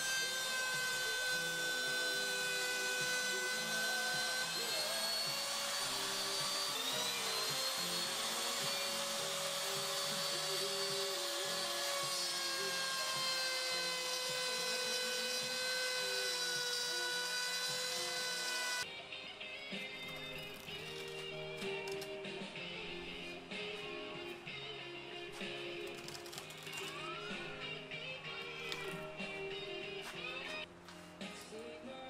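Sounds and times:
router whining cutting wood: 0:00.0 - 0:18.9.

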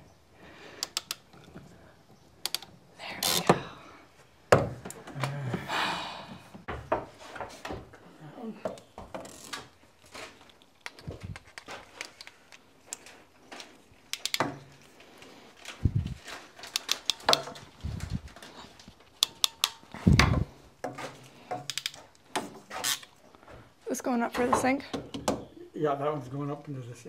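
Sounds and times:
clicks taps and rattles of tubing: 0:00.8 - 0:01.7, 0:02.4 - 0:03.5, 0:08.6 - 0:23.6.

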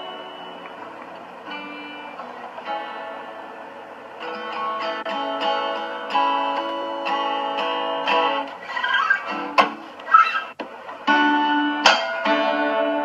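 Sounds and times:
acoustic guitar strummed: 0:00.0 - 0:13.0.

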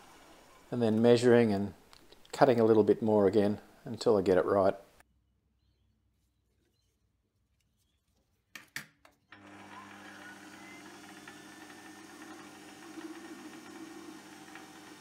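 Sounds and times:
metal lathe motor hum: 0:09.3 - 0:15.0.

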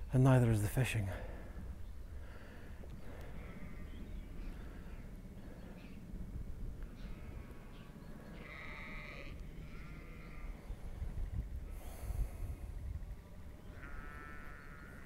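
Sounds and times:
wind rumble on microphone: 0:01.2 - 0:15.0
sheep bleating: 0:08.3 - 0:10.6, 0:13.6 - 0:15.0.

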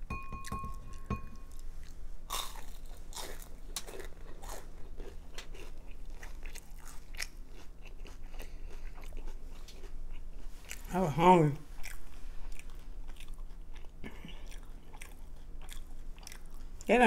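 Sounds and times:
crunchy chewing: 0:01.5 - 0:10.9, 0:11.8 - 0:16.9.

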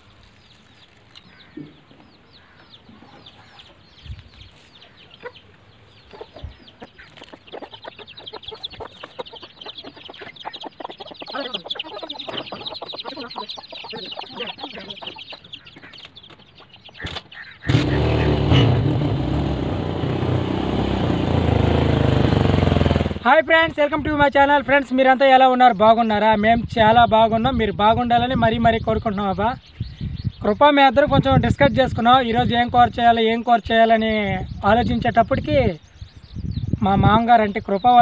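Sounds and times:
chicks cheeping: 0:00.0 - 0:38.0
hen clucking: 0:01.2 - 0:18.5
motorcycle engine running: 0:17.7 - 0:23.3.

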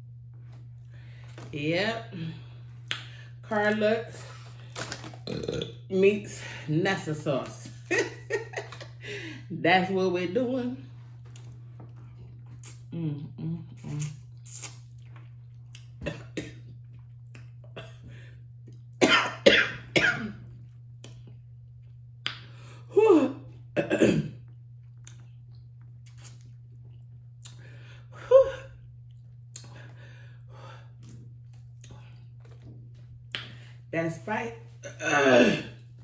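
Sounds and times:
woman coughing: 0:19.0 - 0:20.4, 0:23.8 - 0:24.4, 0:34.8 - 0:35.8.

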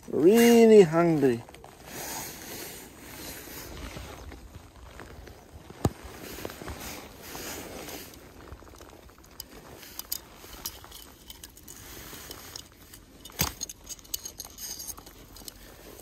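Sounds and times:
metallic clinks of hooks: 0:12.5 - 0:16.0.

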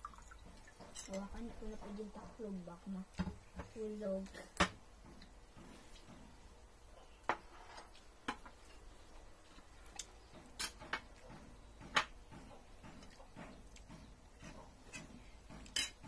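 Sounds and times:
cutlery clinking on ceramic bowls: 0:14.9 - 0:16.0.

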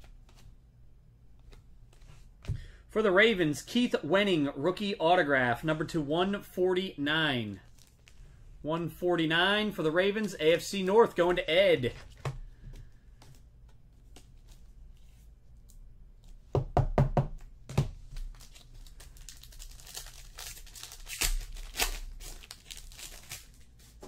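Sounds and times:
cards rustling: 0:07.4 - 0:08.4, 0:09.7 - 0:16.4, 0:17.9 - 0:24.0
foil wrapper crinkling: 0:07.6 - 0:08.2, 0:18.1 - 0:24.0.

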